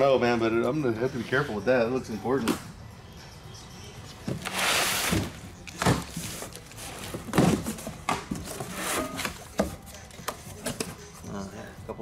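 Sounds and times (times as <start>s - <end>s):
box thumping: 4.2s - 11.0s
packing tape ripping: 4.4s - 6.8s.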